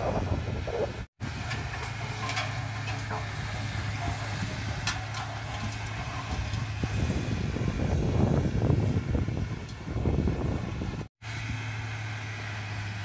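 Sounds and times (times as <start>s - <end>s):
bulldozer diesel engine: 0.0s - 13.0s
sharp metal clanks: 1.4s - 7.0s.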